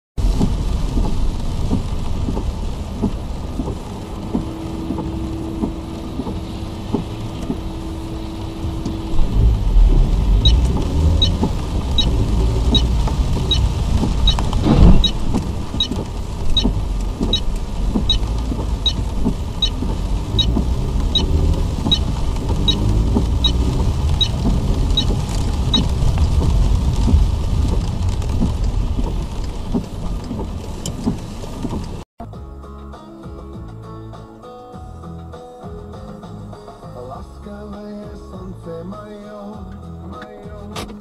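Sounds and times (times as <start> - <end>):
turn signal ticking: 0.2 - 32.0
car engine and tyre rumble: 0.2 - 32.1
loud thump: 14.6 - 15.4.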